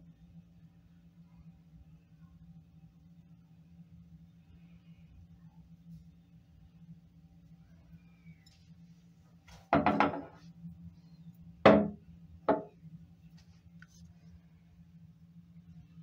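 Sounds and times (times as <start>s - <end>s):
glass bottle knocking on countertop: 9.7s - 10.4s, 11.7s - 12.7s.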